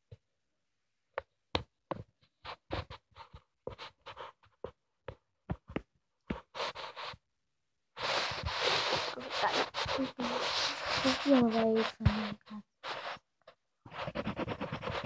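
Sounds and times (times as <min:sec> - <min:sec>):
coloring strokes scratching paper: 0:02.4 - 0:04.8, 0:06.3 - 0:07.2, 0:08.0 - 0:13.3, 0:13.9 - 0:15.0.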